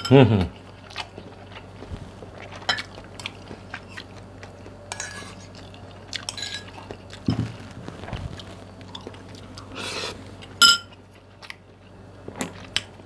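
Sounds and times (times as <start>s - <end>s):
cutlery clinking on ceramic bowls: 10.6s - 10.9s.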